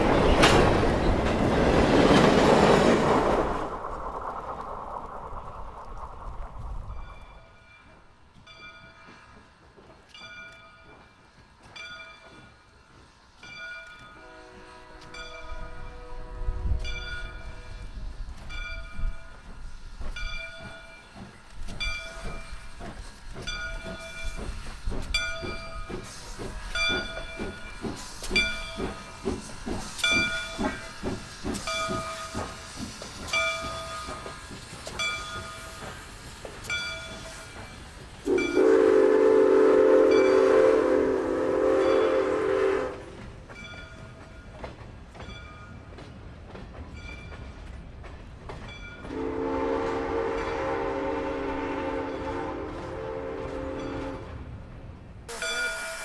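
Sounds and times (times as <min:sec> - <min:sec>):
steam locomotive exhaust beat: 0:00.0 - 0:56.0
locomotive bell ringing: 0:06.9 - 0:09.4, 0:15.1 - 0:16.1, 0:31.6 - 0:32.7, 0:33.3 - 0:36.0, 0:36.6 - 0:39.0, 0:40.1 - 0:40.7, 0:41.8 - 0:42.3, 0:53.6 - 0:54.3, 0:55.3 - 0:56.0
steam whistle chord: 0:38.2 - 0:43.2, 0:49.1 - 0:54.2, 0:55.3 - 0:56.0.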